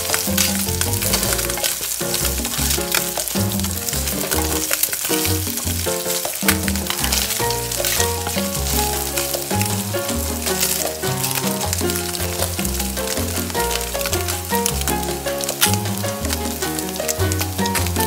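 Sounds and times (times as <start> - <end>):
background music with bass line: 0.0 - 18.0
meat sizzling in hot oil: 0.0 - 18.0
wooden spatula stirring: 0.0 - 18.0.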